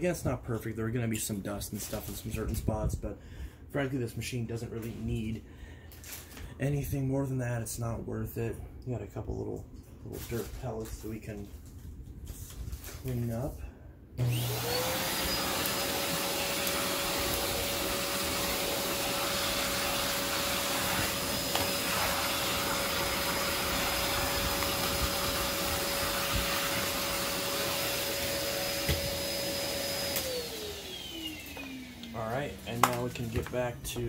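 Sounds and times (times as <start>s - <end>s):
vacuum cleaner motor whine: 14.2s - 33.6s.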